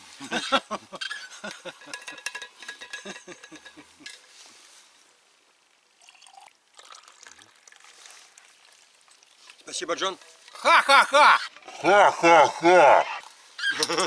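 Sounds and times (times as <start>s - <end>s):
laughter: 0.2s - 2.0s, 10.6s - 13.0s, 13.7s - 14.0s
liquid pouring into glass jar: 6.0s - 9.7s.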